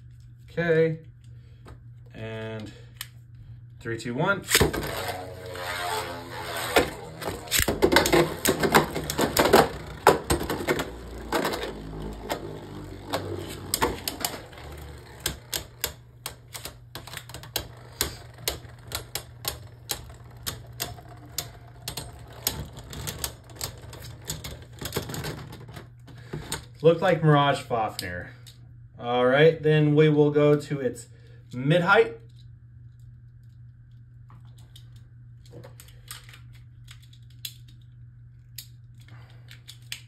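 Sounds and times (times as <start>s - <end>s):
spinning tops clacking: 4.5s - 24.7s.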